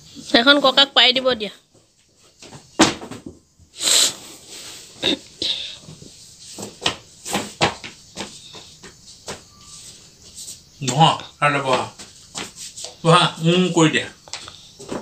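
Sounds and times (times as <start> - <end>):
mat slapping on hard floor: 6.4 - 9.5, 11.7 - 13.0.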